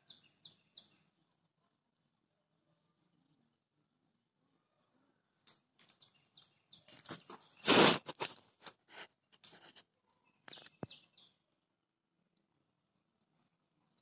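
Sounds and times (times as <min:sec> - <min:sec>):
pigeon rustle: 0:05.3 - 0:11.0
pigeon feet tapping and scratching: 0:05.4 - 0:11.0.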